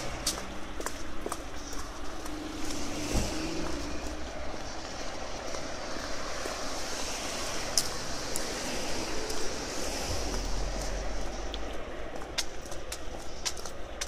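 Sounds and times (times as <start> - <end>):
passing road traffic: 0.0 - 14.0.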